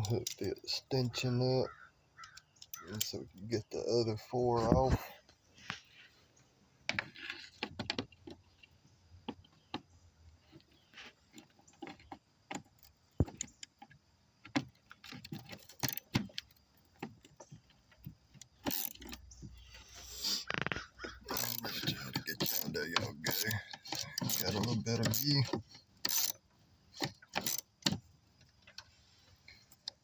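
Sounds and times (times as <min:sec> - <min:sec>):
socket wrench clicking on bolts: 0:18.5 - 0:19.3, 0:21.3 - 0:22.7, 0:23.3 - 0:25.2, 0:26.0 - 0:26.4, 0:27.0 - 0:28.0.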